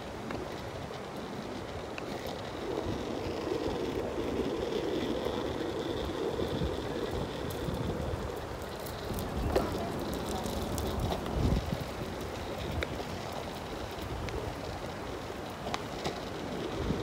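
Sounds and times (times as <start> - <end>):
longboard wheels rolling on asphalt: 0.0 - 17.0
wind on microphone: 0.0 - 17.0.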